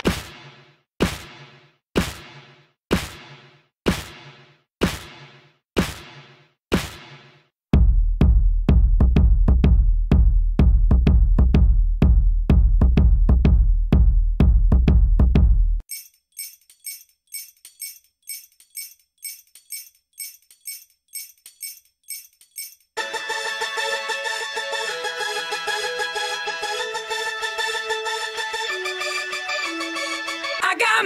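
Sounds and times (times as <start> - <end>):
deep kick drum hits: 7.8 - 15.7.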